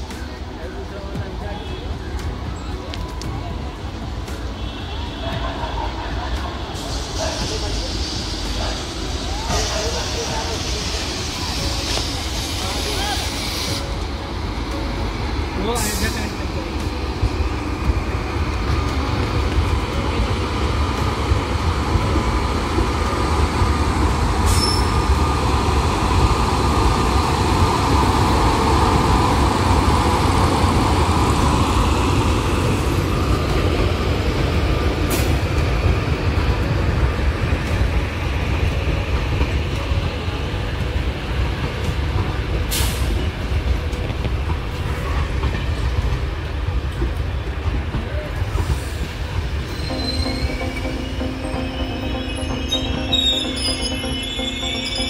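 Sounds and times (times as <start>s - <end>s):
train wheels rumbling on rail: 0.0s - 55.0s
train wheel squeal: 24.4s - 25.3s, 48.1s - 55.0s.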